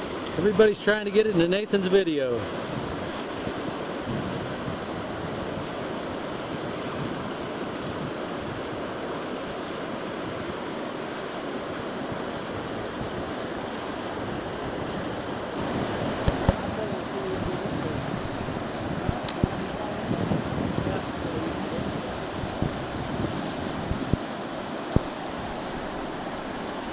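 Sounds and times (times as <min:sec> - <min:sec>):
whitewater rapids rushing: 0:00.0 - 0:26.9.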